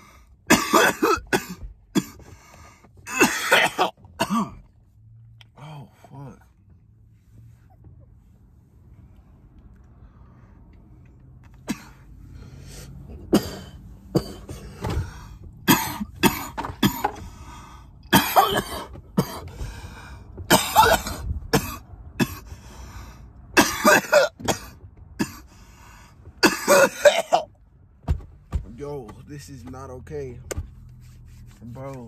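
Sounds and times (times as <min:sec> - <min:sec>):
man coughing: 0:00.5 - 0:02.3, 0:03.1 - 0:04.7, 0:11.6 - 0:12.1, 0:13.2 - 0:14.8, 0:15.6 - 0:17.2, 0:18.1 - 0:19.5, 0:20.5 - 0:22.5, 0:23.6 - 0:25.5, 0:26.4 - 0:27.5.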